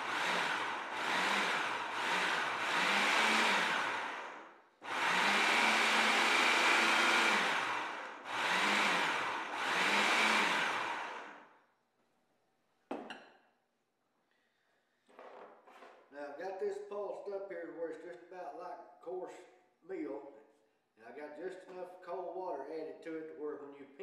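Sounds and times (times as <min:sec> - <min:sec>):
food processor motor whirring: 0:00.0 - 0:11.5.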